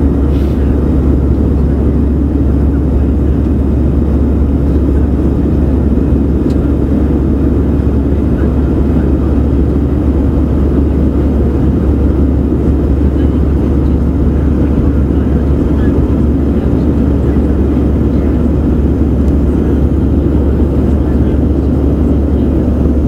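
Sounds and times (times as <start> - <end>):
rushing air: 0.0 - 2.6
jet engines rumbling in cabin: 0.0 - 23.0.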